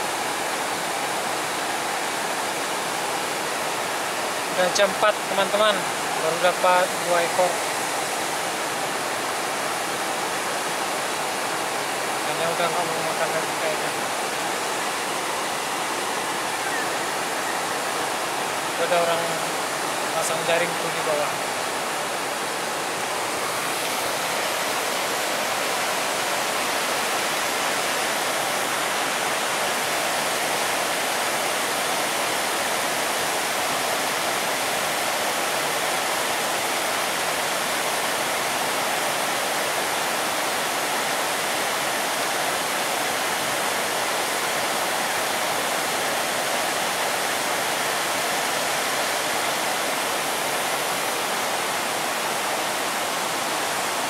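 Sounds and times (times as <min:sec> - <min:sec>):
river rushing over rapids: 0:00.0 - 0:54.0.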